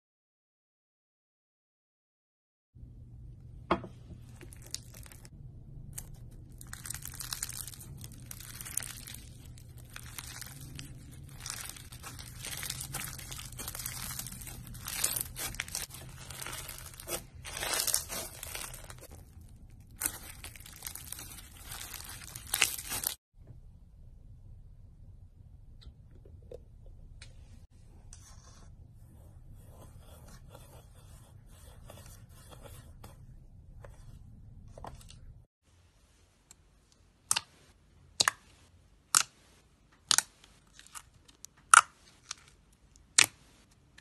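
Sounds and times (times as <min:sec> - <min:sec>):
foam bead slime crunching: 0:04.4 - 0:05.3, 0:05.9 - 0:23.2.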